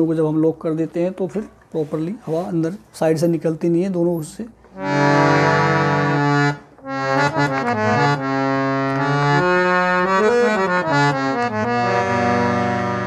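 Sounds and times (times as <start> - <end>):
harmonium melody: 4.6 - 13.0.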